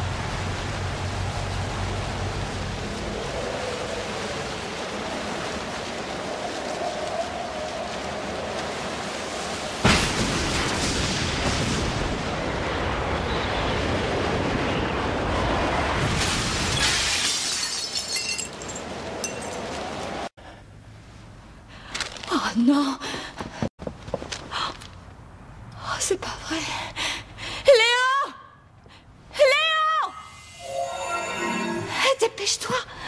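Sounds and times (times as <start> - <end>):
rushing wind-like noise: 0.0 - 16.8.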